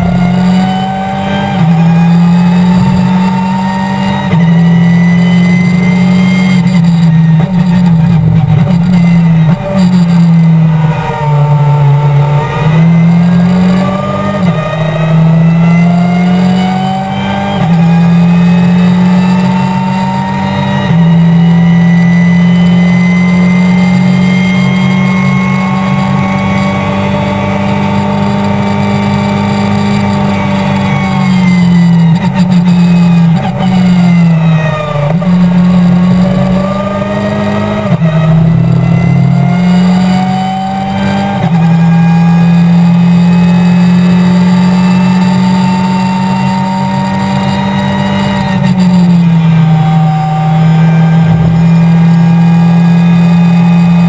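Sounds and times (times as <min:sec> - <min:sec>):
race car engine accelerating: 0:00.0 - 0:54.0.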